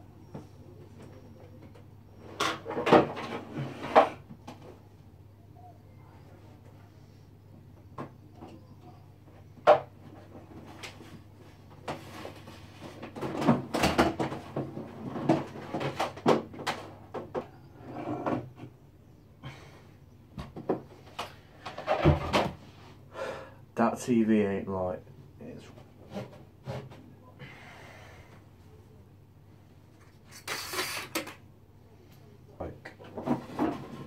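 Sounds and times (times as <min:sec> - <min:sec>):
objects clattering and bumping: 0:00.2 - 0:04.9, 0:07.6 - 0:18.8, 0:20.3 - 0:22.8, 0:25.7 - 0:27.2, 0:32.9 - 0:34.0.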